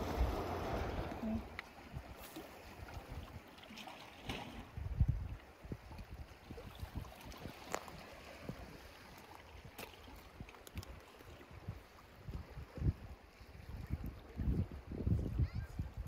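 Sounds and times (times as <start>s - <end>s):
sea water washing against rocks: 0.0s - 4.9s
wind buffeting microphone: 4.6s - 9.8s, 11.5s - 16.0s.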